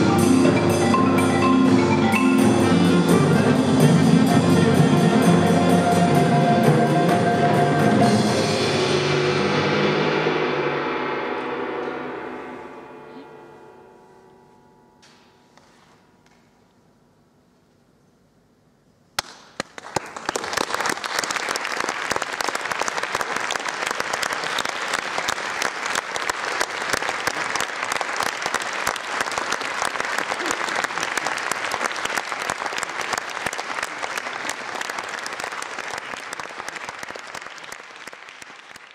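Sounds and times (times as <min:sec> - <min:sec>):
audience applause: 0:19.2 - 0:38.9.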